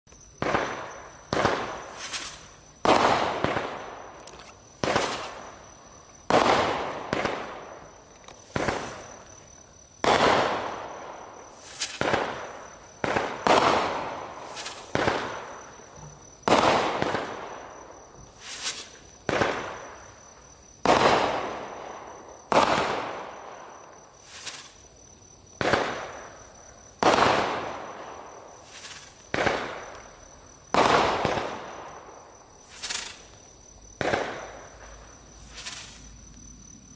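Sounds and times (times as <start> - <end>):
fireworks bangs with echo: 0.4 - 4.2, 4.8 - 9.4, 10.0 - 20.2, 20.8 - 24.8, 25.6 - 30.0, 30.7 - 33.2, 33.9 - 35.0.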